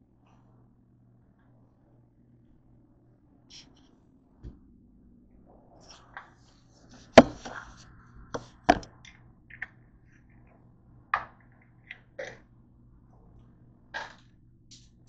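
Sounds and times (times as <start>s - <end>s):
handling knocks and taps: 8.4s - 8.9s.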